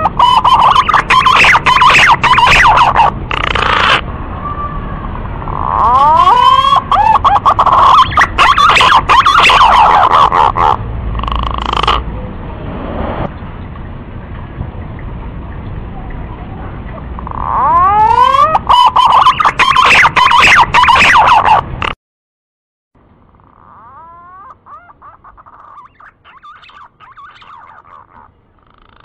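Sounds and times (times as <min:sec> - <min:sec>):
pigeon calling with whistled notes: 0:00.0 - 0:04.0, 0:17.6 - 0:21.6.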